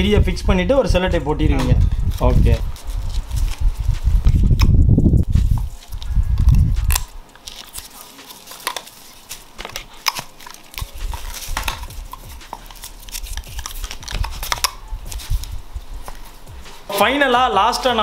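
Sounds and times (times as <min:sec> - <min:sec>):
low muffled rumble: 0:00.0 - 0:07.0, 0:11.0 - 0:16.7.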